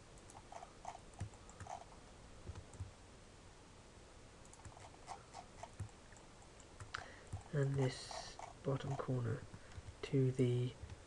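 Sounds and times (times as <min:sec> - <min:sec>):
room hiss: 0:00.0 - 0:11.0
mouse and keyboard clicks: 0:04.5 - 0:07.8.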